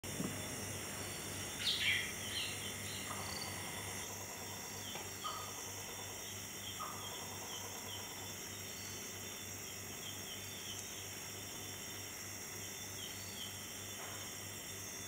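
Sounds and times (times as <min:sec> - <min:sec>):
crickets and insects chorus: 0:00.0 - 0:15.0
short chirping calls: 0:01.1 - 0:03.7.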